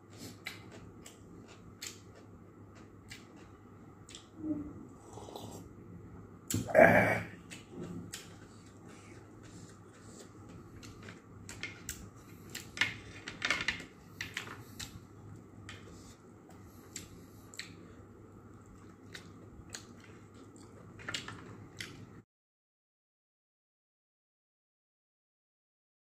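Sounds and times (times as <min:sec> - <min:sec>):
faint background hum: 0:00.0 - 0:22.2
chewing: 0:00.1 - 0:05.7, 0:07.4 - 0:13.2, 0:13.8 - 0:22.2.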